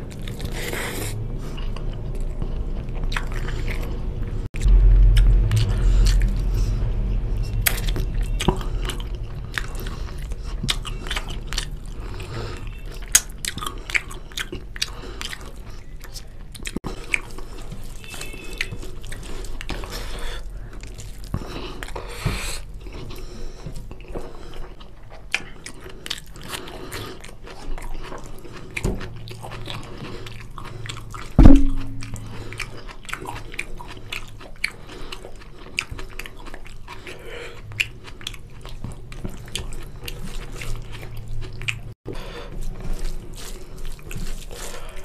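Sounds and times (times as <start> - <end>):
man chewing: 0.0 - 45.0
loud thump: 31.4 - 32.3.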